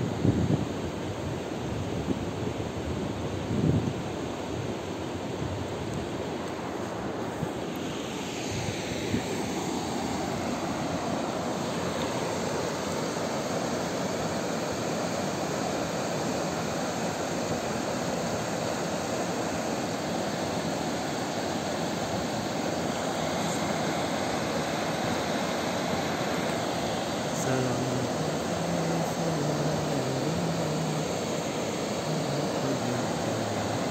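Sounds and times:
river rushing over stones: 6.0 - 33.9.

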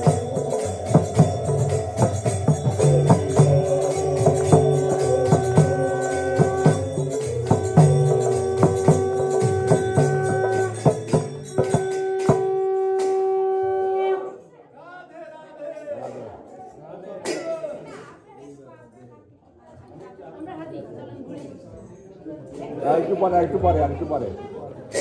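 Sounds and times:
hand drum beats: 0.0 - 14.3
long held notes: 0.0 - 14.4
jingling cymbals: 0.0 - 14.6.

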